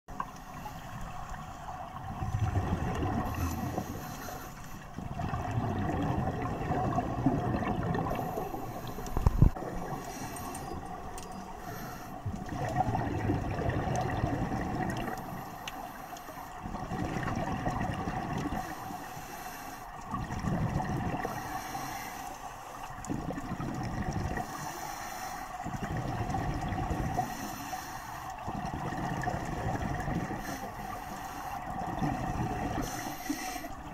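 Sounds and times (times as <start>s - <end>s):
exhaust bubbles rumbling: 1.9s - 4.1s, 5.0s - 10.0s, 12.2s - 15.4s, 16.7s - 18.7s, 20.0s - 21.4s, 22.9s - 24.6s, 25.7s - 27.4s, 28.4s - 30.5s, 31.7s - 33.0s.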